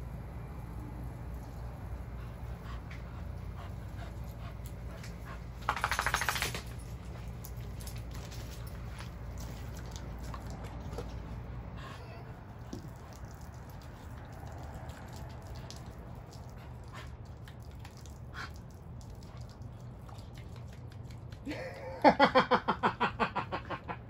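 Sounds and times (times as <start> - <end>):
dog panting: 2.0 - 6.3
loud rapid rattling burst: 5.6 - 6.8.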